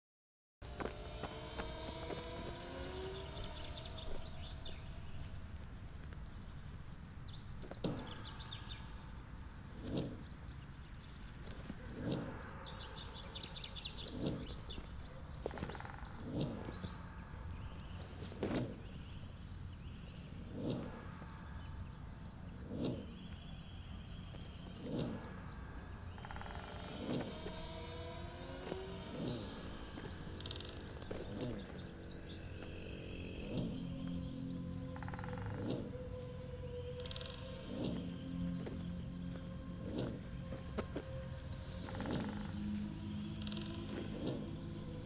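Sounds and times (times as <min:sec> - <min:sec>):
birds chirping: 0:00.6 - 0:45.0
steady low hum: 0:00.6 - 0:45.0
soft pulses: 0:11.3 - 0:45.0.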